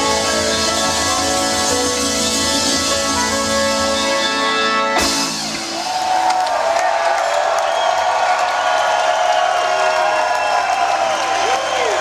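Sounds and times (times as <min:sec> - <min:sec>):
crowd shouts and whoops: 0:05.2 - 0:12.0
crowd clapping: 0:05.3 - 0:12.0.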